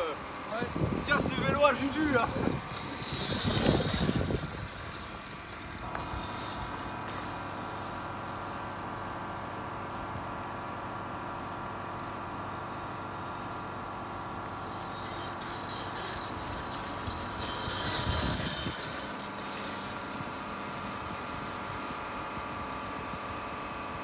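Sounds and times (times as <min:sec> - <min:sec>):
steady hum: 0:00.0 - 0:24.0
electric motorbike passing: 0:01.6 - 0:10.3, 0:14.2 - 0:22.2.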